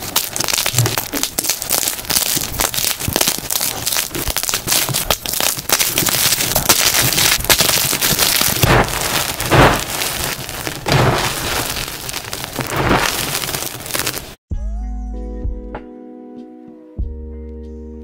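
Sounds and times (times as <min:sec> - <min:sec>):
chalk blocks crunching in hands: 0:00.0 - 0:14.4.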